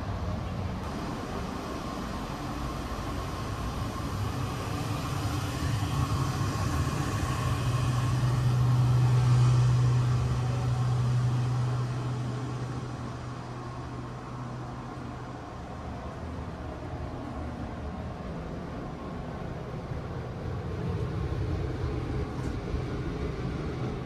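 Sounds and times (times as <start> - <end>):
low hum: 0.0 - 24.0
train car rumble: 0.0 - 24.0.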